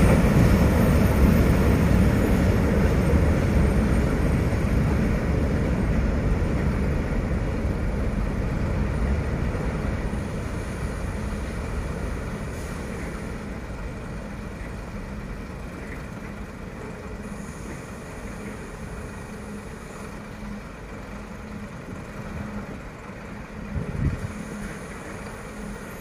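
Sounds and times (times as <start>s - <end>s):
freight train rumbling on track: 0.0s - 26.0s.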